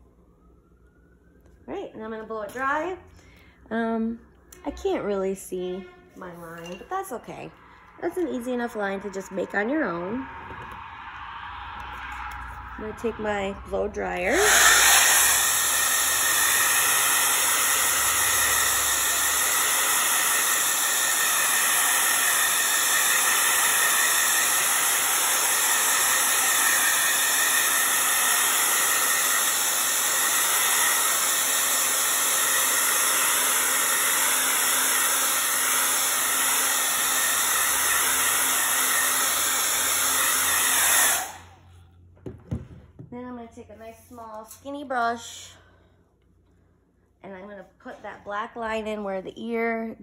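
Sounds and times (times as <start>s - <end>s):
hair dryer running: 11.9s - 41.7s.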